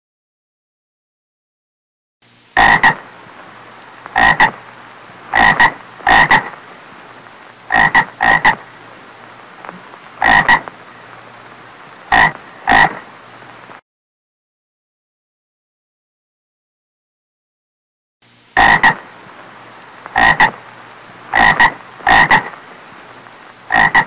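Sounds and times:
faint steady hiss: 2.2s - 13.8s, 18.2s - 24.0s
frog croaking: 2.6s - 3.1s, 4.1s - 4.6s, 5.3s - 6.6s, 7.7s - 8.8s, 9.6s - 11.1s, 12.1s - 13.1s, 18.6s - 19.1s, 20.1s - 20.6s, 21.3s - 22.6s, 23.7s - 24.0s.

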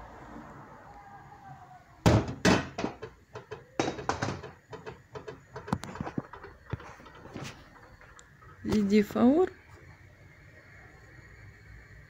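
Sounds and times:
metal cookware knocking: 2.1s - 7.2s.

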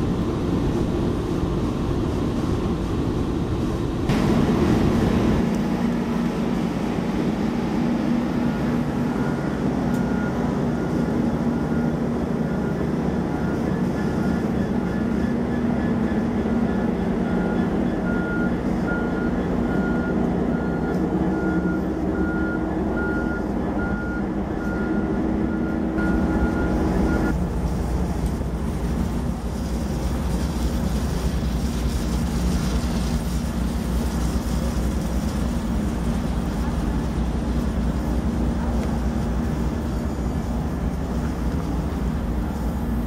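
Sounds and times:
diesel locomotive rumbling: 0.0s - 43.0s
repeated high beep: 17.3s - 27.3s.

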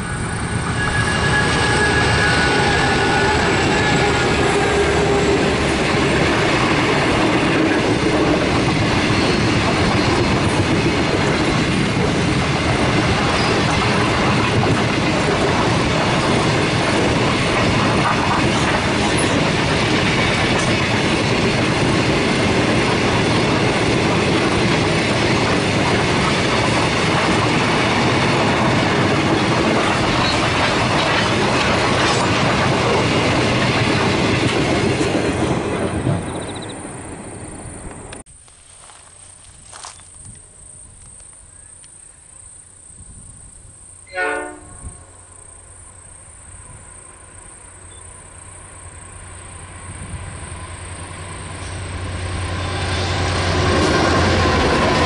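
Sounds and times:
steel train wheels on rails: 0.0s - 42.0s, 42.6s - 55.0s.

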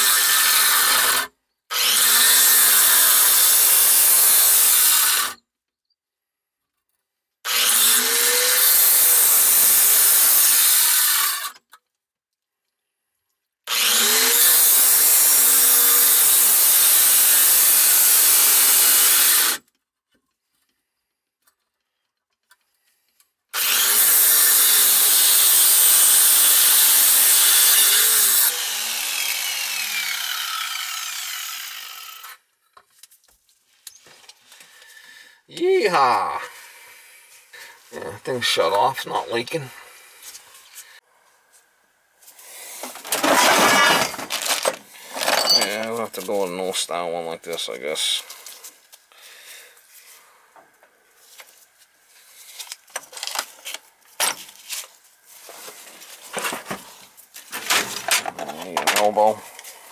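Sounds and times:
angle grinder cutting metal pipe: 0.0s - 5.4s, 7.5s - 11.6s, 13.7s - 19.6s, 23.6s - 32.5s, 42.8s - 45.8s.

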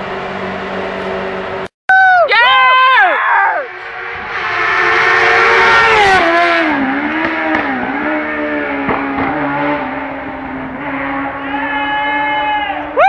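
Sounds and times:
rally car engine passing by: 3.5s - 13.0s.

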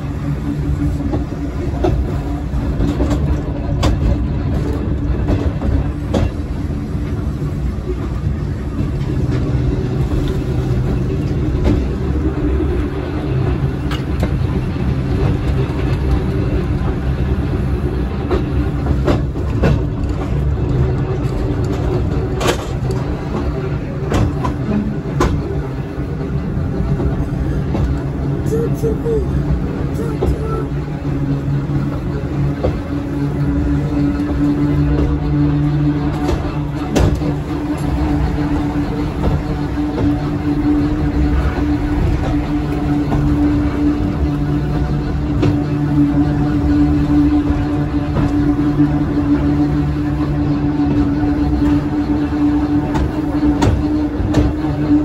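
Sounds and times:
electric railcar rumbling on rails: 0.0s - 55.0s
track clicks and knocks: 0.6s - 55.0s.

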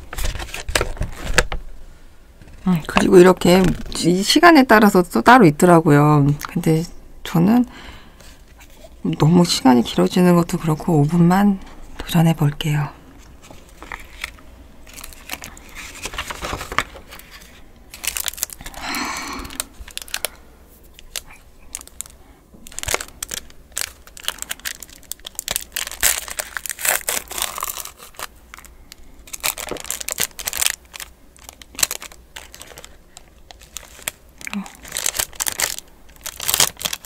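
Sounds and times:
paper rustling: 0.0s - 1.6s, 13.2s - 18.9s, 29.3s - 34.2s
foil pouch crinkling: 13.2s - 37.0s.

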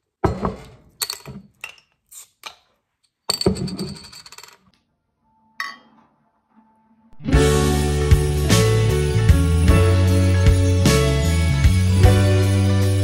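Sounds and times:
glass bottles clinking: 0.3s - 2.0s, 3.3s - 4.6s.

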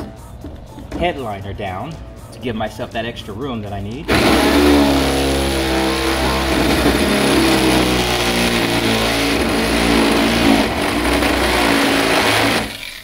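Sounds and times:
electric drill cutting sheet metal: 4.1s - 13.0s.

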